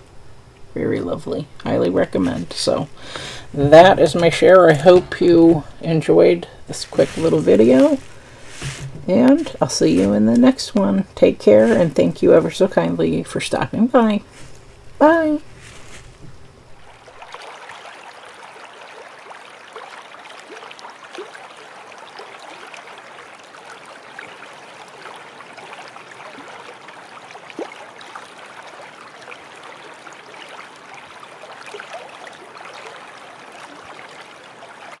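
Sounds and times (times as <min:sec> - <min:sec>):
stream water rushing over rocks: 0:16.8 - 0:35.0.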